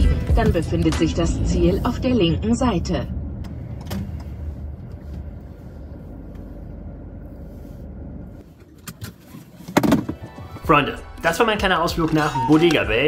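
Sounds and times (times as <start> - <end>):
car rumbling from inside: 0.0 - 9.7.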